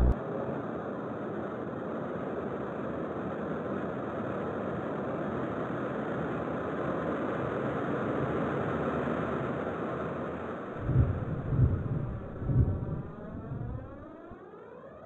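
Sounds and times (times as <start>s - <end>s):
engine-like rumbling rush: 10.8s - 14.5s.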